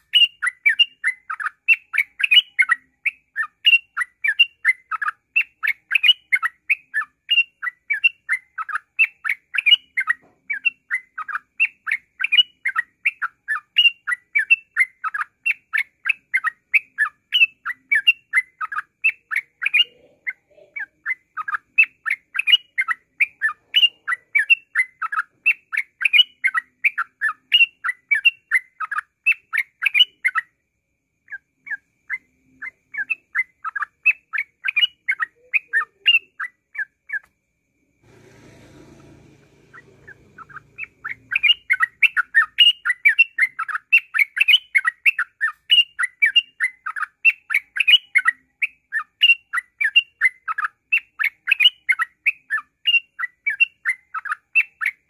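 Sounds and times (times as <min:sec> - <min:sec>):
bulbul chirping: 0:39.7 - 0:47.0.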